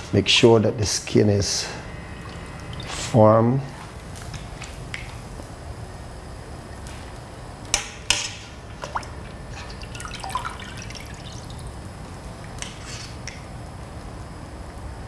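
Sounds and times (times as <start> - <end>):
liquid dripping and splashing: 2.2 - 3.1, 8.7 - 11.8.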